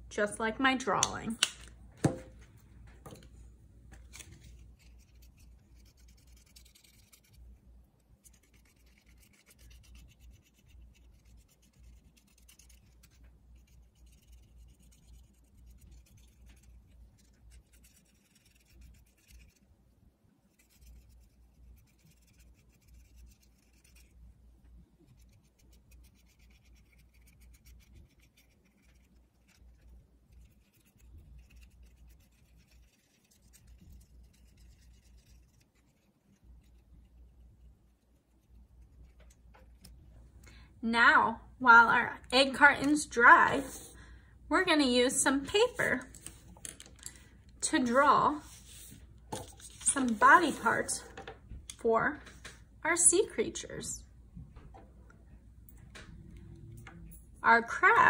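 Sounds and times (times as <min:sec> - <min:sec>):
paintbrush rubbing on cardboard: 0:04.4 - 0:19.7, 0:20.5 - 0:24.2, 0:25.0 - 0:39.2, 0:43.5 - 0:44.0, 0:47.8 - 0:51.1.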